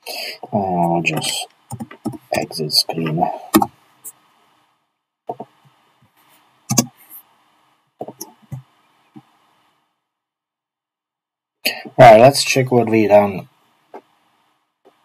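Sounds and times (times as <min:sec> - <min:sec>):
faint microphone hiss: 0:00.0 - 0:10.2, 0:11.6 - 0:15.0
keyboard and mouse clicks: 0:01.1 - 0:02.3, 0:03.5 - 0:03.7, 0:06.7 - 0:07.0.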